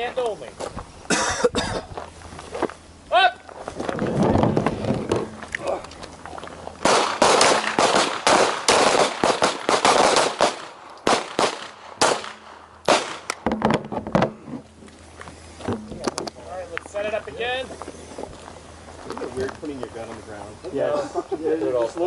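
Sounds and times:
pistol shots: 6.8 - 13.4.

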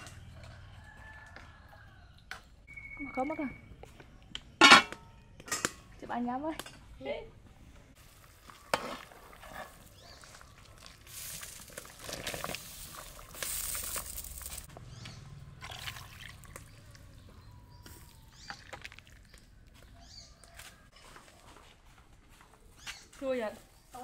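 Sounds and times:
ladle clinking against pot: 4.6 - 5.8
curry boiling and sloshing: 8.0 - 14.7, 15.6 - 17.1, 18.0 - 19.7.

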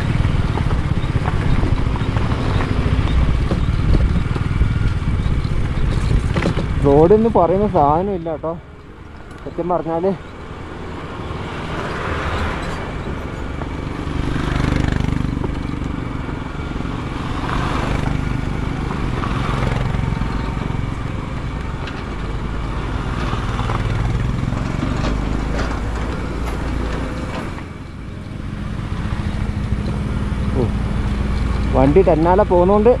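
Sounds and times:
motorcycle engine running: 0.0 - 8.4, 13.5 - 25.4, 26.9 - 33.0
knocks and rattles from bumps: 0.3 - 8.2, 17.6 - 28.0.

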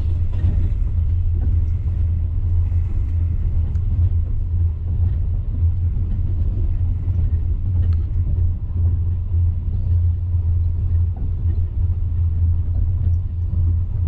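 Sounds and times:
train carriage rumble: 0.0 - 14.0
faint irregular clicks: 2.7 - 9.8.

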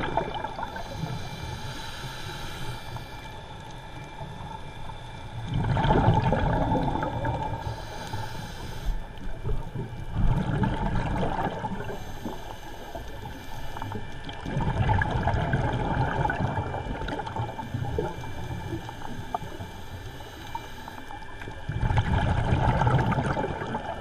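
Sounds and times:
diver inhaling through regulator: 0.4 - 3.6, 7.0 - 9.3, 11.7 - 14.0, 17.4 - 21.2
diver exhaling bubbles underwater: 5.5 - 7.6, 9.5 - 12.0, 21.7 - 24.0.

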